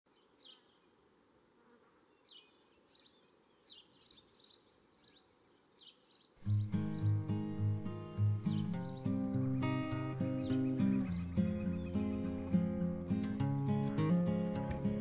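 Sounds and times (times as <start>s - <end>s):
faint outdoor hiss: 0.1s - 15.0s
small bird chirping: 2.1s - 13.3s
music: 6.4s - 15.0s.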